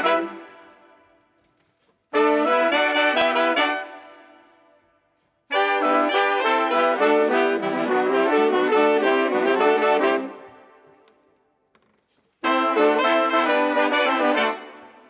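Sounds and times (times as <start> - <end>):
big band horn section playing: 2.1 - 4.1, 5.5 - 10.5, 12.4 - 15.0.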